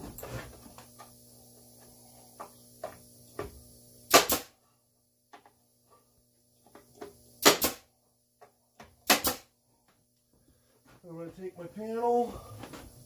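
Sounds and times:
nail gun firing into wood: 0:04.1 - 0:04.6, 0:07.4 - 0:07.9, 0:09.0 - 0:09.5.

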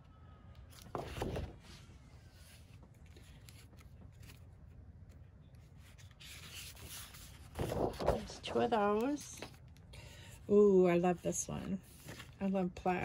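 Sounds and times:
paper rustling: 0:00.7 - 0:09.8, 0:11.7 - 0:12.5.

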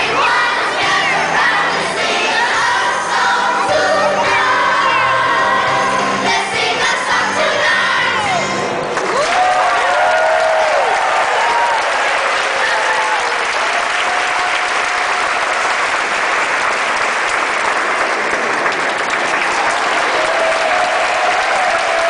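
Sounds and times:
audience applauding: 0:08.8 - 0:22.0.

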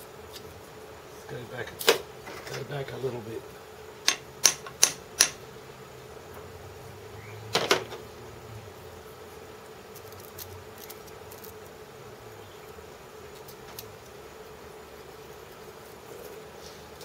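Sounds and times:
faint steady hum: 0:00.0 - 0:17.0
small hammer tapping metal: 0:04.1 - 0:05.4.

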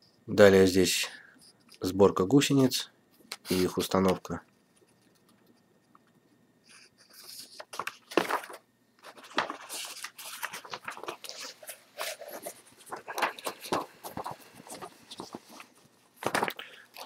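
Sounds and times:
paper booklet pages rustling: 0:03.3 - 0:05.6, 0:06.7 - 0:17.0.

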